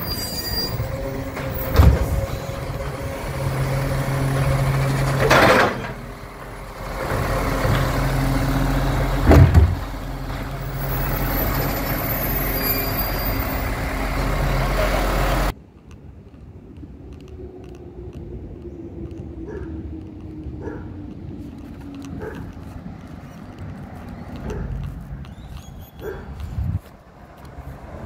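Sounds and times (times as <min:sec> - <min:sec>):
distant street noise: 0:00.0 - 0:28.0
truck engine and hydraulic drone: 0:00.0 - 0:28.0
bin banging into hopper: 0:09.3 - 0:09.8.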